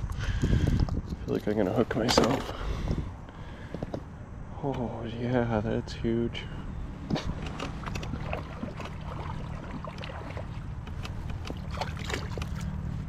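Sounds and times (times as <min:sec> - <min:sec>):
low machine hum: 0:00.0 - 0:13.0
water lapping against kayak hull: 0:06.6 - 0:13.0.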